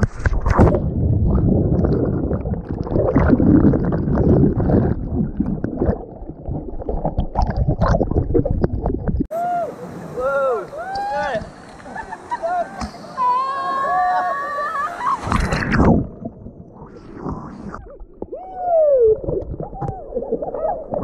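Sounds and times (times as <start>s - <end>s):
water rushing and churning: 0.0s - 21.0s
muffled underwater gurgling and bubbling: 0.3s - 9.3s.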